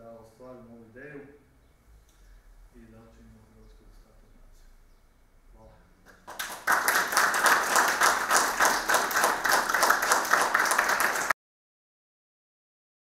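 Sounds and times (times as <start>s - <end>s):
audience applauding: 6.2s - 11.4s.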